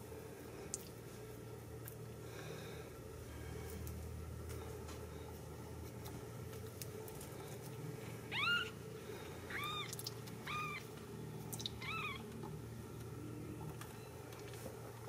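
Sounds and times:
kitten mewing: 8.3s - 8.8s, 9.5s - 10.8s, 11.8s - 12.2s.

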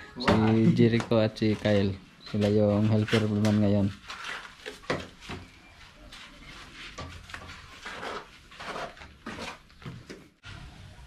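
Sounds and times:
hand tools scraping wet mortar: 0.8s - 5.3s, 6.2s - 9.7s.

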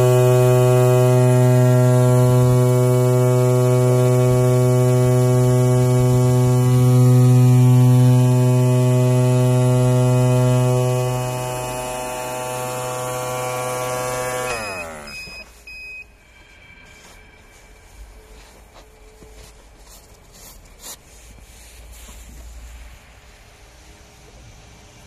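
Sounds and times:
oscillating knife buzzing through foam: 0.0s - 15.6s.

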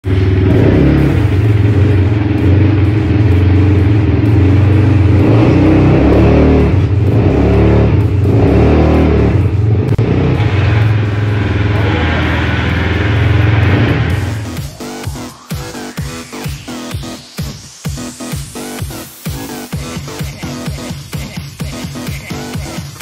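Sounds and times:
quad bike engine running: 0.0s - 15.2s
music playing: 0.0s - 23.0s.

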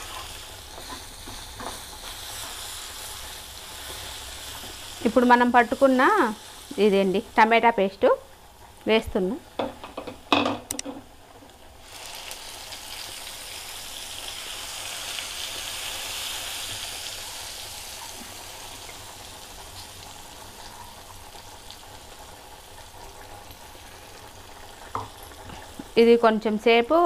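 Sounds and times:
paste sizzling in hot oil: 0.0s - 7.9s, 11.8s - 26.4s.

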